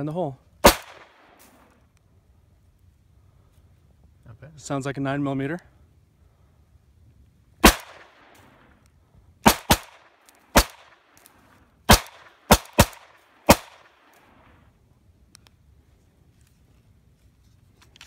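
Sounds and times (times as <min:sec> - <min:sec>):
blank pistol shots: 0:00.6 - 0:01.4, 0:07.6 - 0:08.4, 0:09.4 - 0:11.1, 0:11.9 - 0:14.0.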